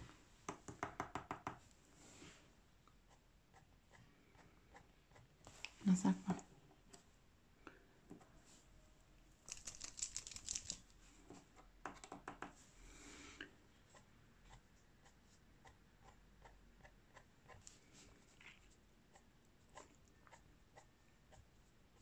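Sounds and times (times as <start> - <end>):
sharp clicks and rustles: 9.4 - 11.0.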